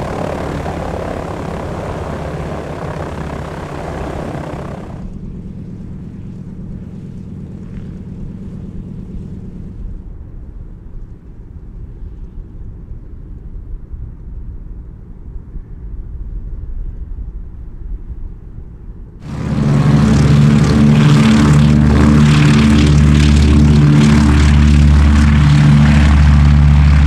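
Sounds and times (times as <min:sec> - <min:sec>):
aircraft piston engines running: 0:00.0 - 0:09.9, 0:19.2 - 0:27.0.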